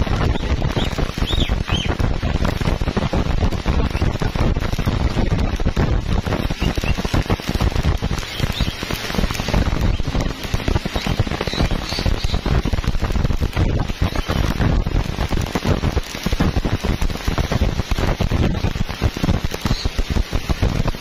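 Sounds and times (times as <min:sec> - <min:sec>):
welding arc crackling: 0:00.0 - 0:21.0.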